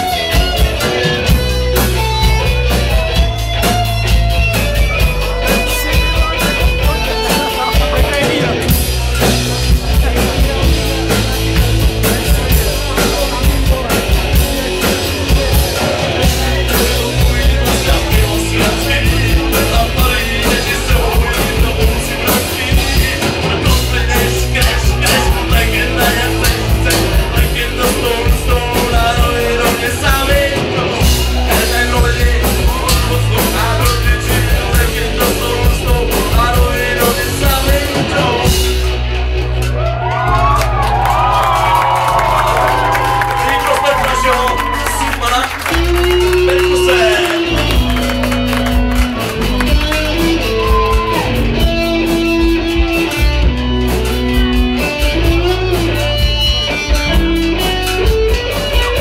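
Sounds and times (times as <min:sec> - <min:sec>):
heavy bass: 0:00.0 - 0:59.0
live band playing loudly: 0:00.0 - 0:59.0
steady drum beat: 0:00.0 - 0:59.0
lead singer singing: 0:09.9 - 0:38.8, 0:42.8 - 0:48.1.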